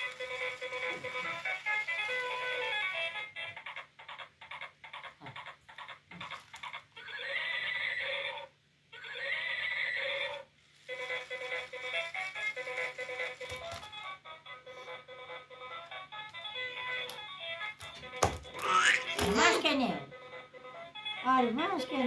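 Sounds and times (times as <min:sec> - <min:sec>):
electronic horse whinnies: 0:07.0 - 0:10.4.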